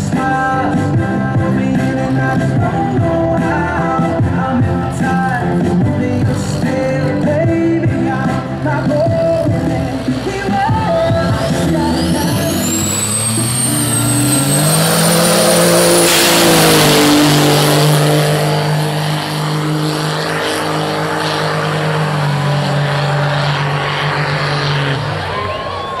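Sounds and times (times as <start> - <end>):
diesel truck engine revving: 0.0 - 26.0
thin high whistle: 11.9 - 16.4.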